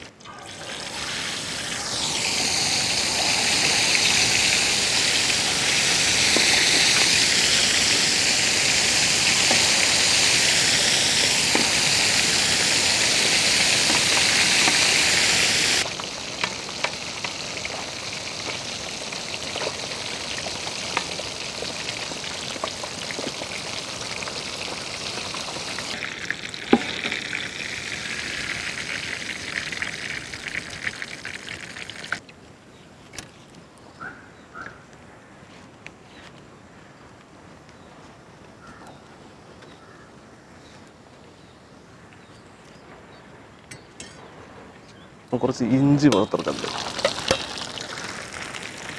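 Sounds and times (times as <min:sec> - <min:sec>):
oil crackles and pops: 0:00.0 - 0:32.2, 0:46.0 - 0:48.9
fish deep-frying in hot oil: 0:00.4 - 0:32.2, 0:45.8 - 0:48.9.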